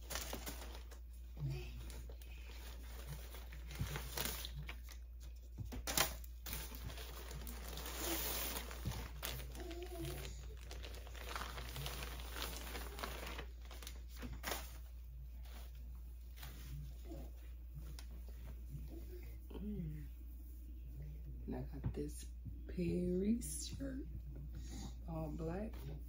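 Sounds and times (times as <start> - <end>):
plastic bag crinkling: 0.0 - 5.0, 5.8 - 15.7.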